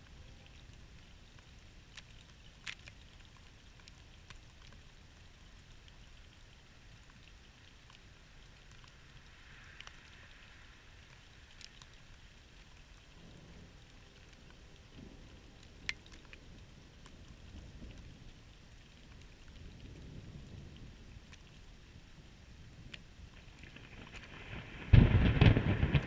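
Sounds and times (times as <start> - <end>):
faint steady rain hiss: 0.0 - 26.0
raindrops ticking: 0.0 - 26.0
faint low thunder rumble: 12.3 - 26.0.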